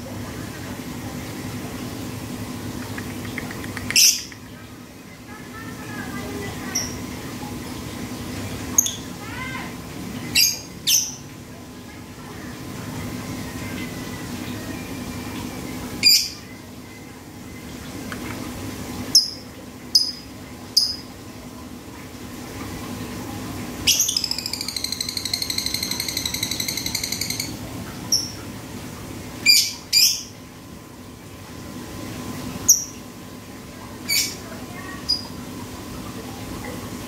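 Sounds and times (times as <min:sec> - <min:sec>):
lovebird high calls: 0:03.8 - 0:04.4, 0:23.9 - 0:27.5
bird ticking trill: 0:23.9 - 0:28.4.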